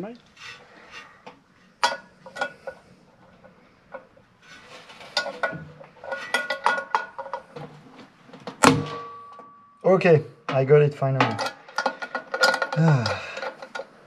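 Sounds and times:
metal clank with ringing: 0:08.6 - 0:09.8.

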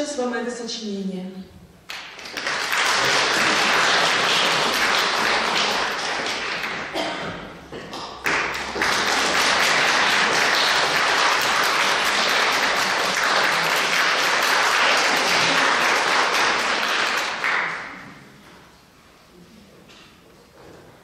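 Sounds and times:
audience applauding: 0:01.9 - 0:07.0, 0:07.9 - 0:18.2.

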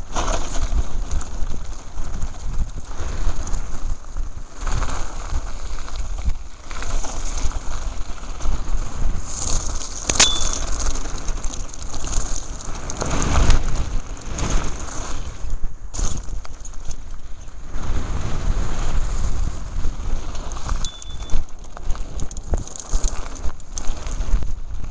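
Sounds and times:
bike tyres crunching on gravel: 0:00.0 - 0:24.9.

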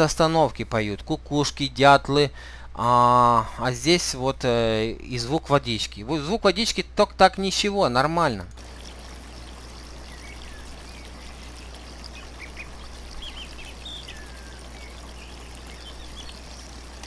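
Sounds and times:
low hum: 0:08.6 - 0:17.0
faint bird chirps: 0:09.3 - 0:17.0.

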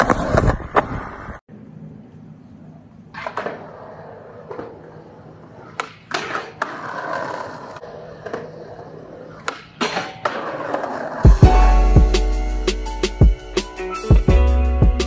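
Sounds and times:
skateboard wheels rolling: 0:00.0 - 0:12.4
skateboard clacks: 0:03.1 - 0:11.4.

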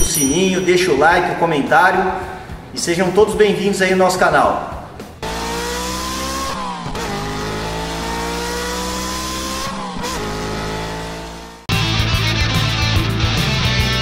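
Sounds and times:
car engine accelerating: 0:05.0 - 0:11.7
electric guitar rock music: 0:11.7 - 0:14.0.

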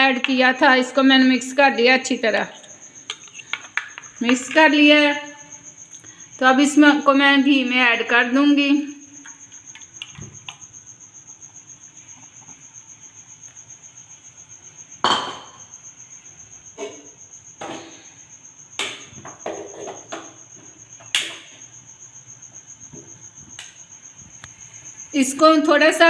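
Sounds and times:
cricket trilling: 0:00.0 - 0:26.0
sharp knocks and clatters: 0:03.1 - 0:04.7.

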